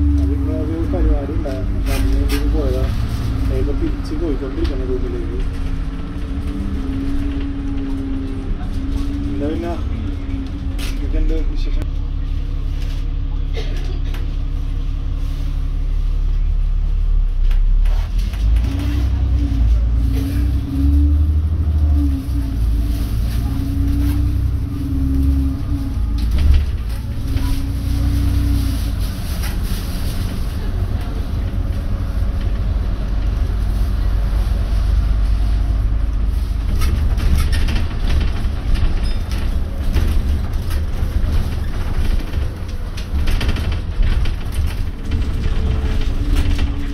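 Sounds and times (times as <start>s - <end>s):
bus engine rumble: 0.0s - 46.9s.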